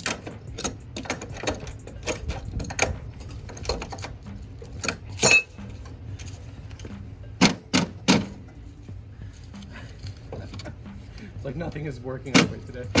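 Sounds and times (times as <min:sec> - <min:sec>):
wrench clinking on steel: 0:00.0 - 0:07.0.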